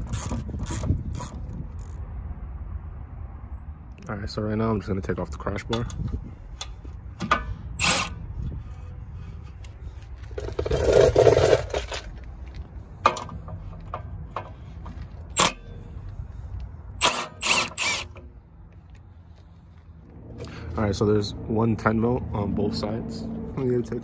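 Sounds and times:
impact driver backing out bolts: 5.7 - 8.2, 13.0 - 15.8, 17.0 - 18.3.

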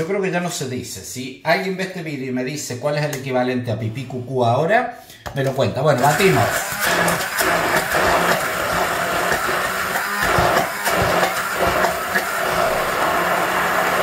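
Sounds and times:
stick blender motor humming: 6.0 - 14.0.

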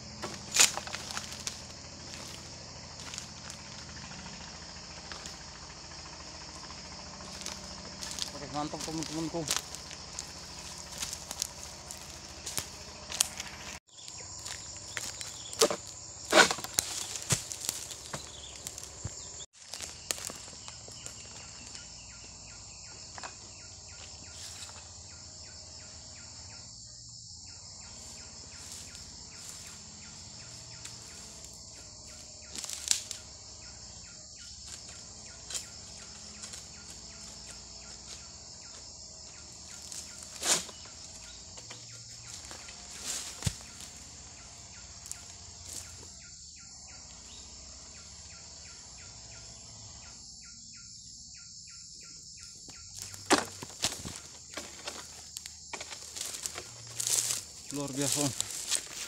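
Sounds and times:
high-pitched insect chorus: 0.0 - 59.0
sharp knocks and rustles: 0.1 - 5.6, 14.4 - 21.9, 52.9 - 57.6.

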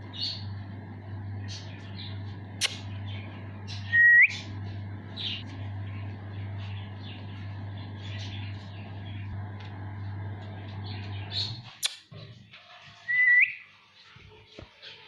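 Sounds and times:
sharp click: 2.6 - 2.8, 11.7 - 12.1
parrot chirping: 2.7 - 4.5.

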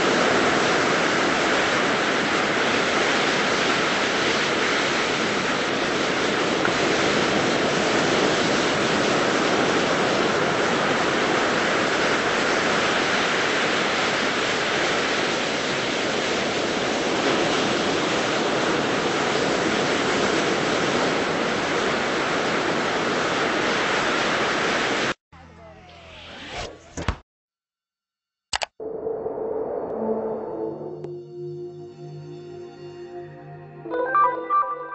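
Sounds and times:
ocean surf washing onto beach: 0.0 - 25.2.

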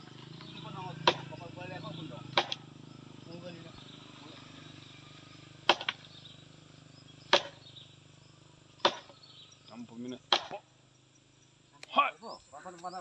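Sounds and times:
sharp knocks on tree trunk: 1.0 - 1.4, 2.3 - 2.7, 5.6 - 6.1, 7.3 - 7.7, 8.8 - 9.2, 10.2 - 10.7.

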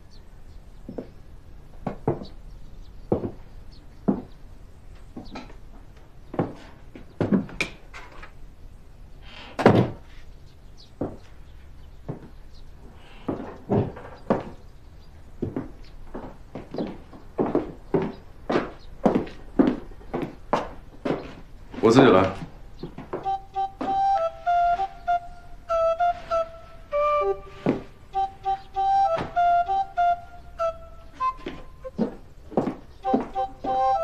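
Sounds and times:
footsteps on hard floor: 3.1 - 3.4, 4.1 - 4.4, 13.3 - 14.6, 15.4 - 24.9, 25.9 - 29.8, 31.1 - 34.0.

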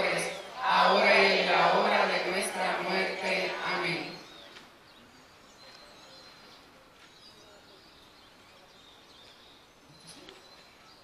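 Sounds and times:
faint chirps: 2.7 - 11.0.

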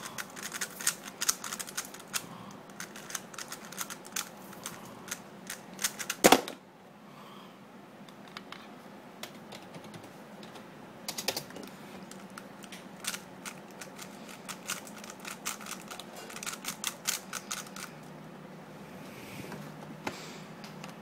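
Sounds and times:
puzzle cube clicking: 0.1 - 6.3, 12.2 - 17.9.

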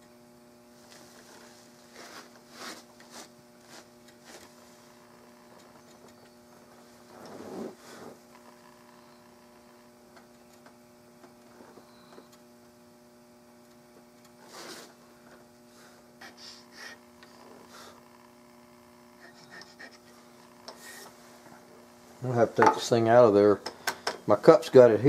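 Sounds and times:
electrical hum: 0.0 - 25.0
checkering tool scraping wood: 19.2 - 21.2.

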